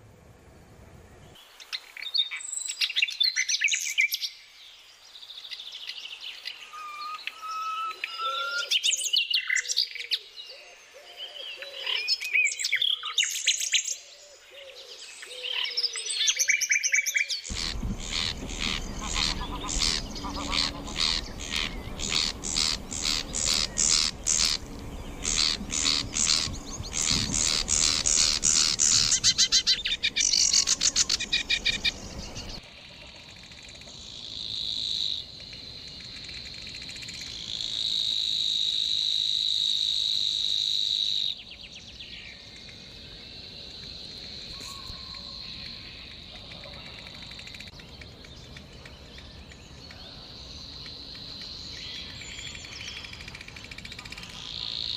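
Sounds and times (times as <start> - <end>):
songbirds chattering trill: 17.2 - 37.8, 41.3 - 54.9
high buzzing bird reel: 17.5 - 32.6.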